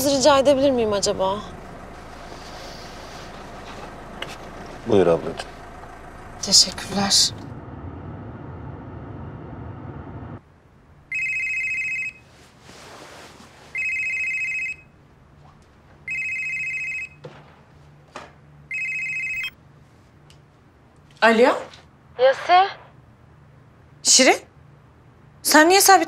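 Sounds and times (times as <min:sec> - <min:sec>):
car interior rumble: 0:00.0 - 0:10.4
telephone ringing electronic tone: 0:11.1 - 0:12.2, 0:13.8 - 0:14.9, 0:16.1 - 0:17.2, 0:18.7 - 0:19.6.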